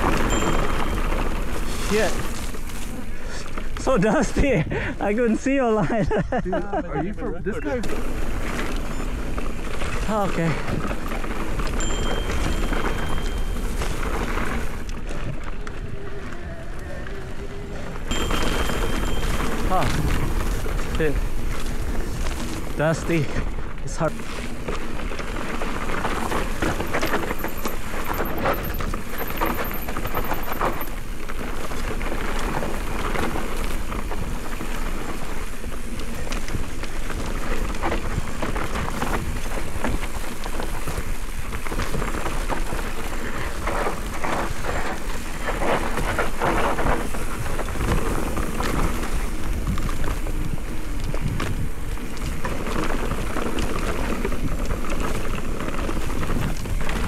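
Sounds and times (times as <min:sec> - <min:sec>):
tyres crunching over gravel: 0:00.0 - 0:57.0
wind buffeting microphone: 0:08.0 - 0:57.0
bike knocks and rattles: 0:18.1 - 0:23.0, 0:24.1 - 0:57.0.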